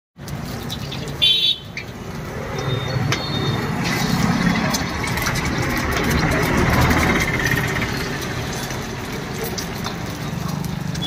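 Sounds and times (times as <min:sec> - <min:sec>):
street traffic noise: 0:00.2 - 0:11.0
vehicle horn toot: 0:01.2 - 0:01.7
egg sizzling in a wok: 0:01.7 - 0:11.0.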